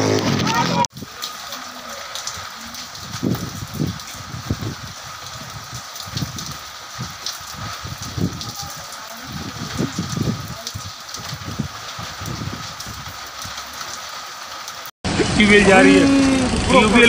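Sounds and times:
rain falling: 0:00.0 - 0:17.0
wind buffeting microphone: 0:02.3 - 0:13.7.

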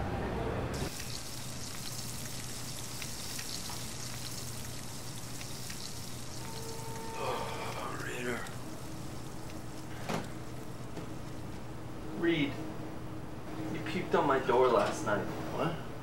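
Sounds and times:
food sizzling in a wok: 0:00.8 - 0:11.3
small crackles and pops: 0:00.9 - 0:11.6.

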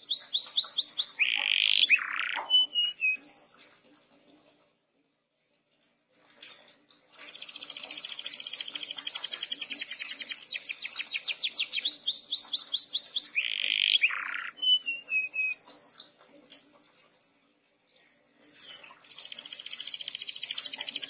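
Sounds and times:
canary singing: 0:00.0 - 0:03.7, 0:07.4 - 0:16.0.

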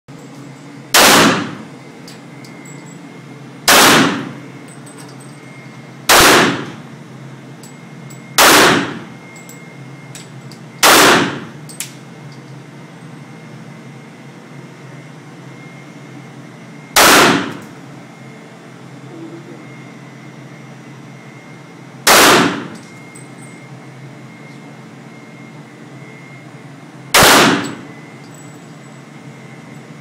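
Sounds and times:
pistol shots echoing indoors: 0:00.9 - 0:01.6, 0:03.6 - 0:04.4, 0:06.1 - 0:06.8, 0:08.4 - 0:09.1, 0:10.8 - 0:11.5, 0:17.0 - 0:17.7, 0:22.1 - 0:22.9, 0:27.2 - 0:27.8.

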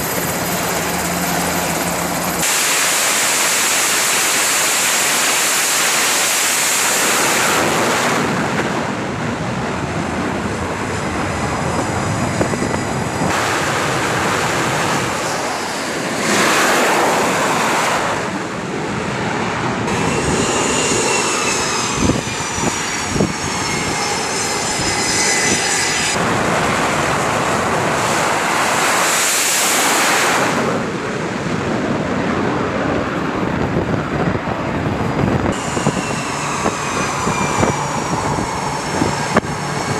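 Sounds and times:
high whine falling in pitch: 0:00.0 - 0:18.9, 0:19.8 - 0:31.0, 0:35.3 - 0:39.9
jet engines running loud: 0:00.0 - 0:39.9.

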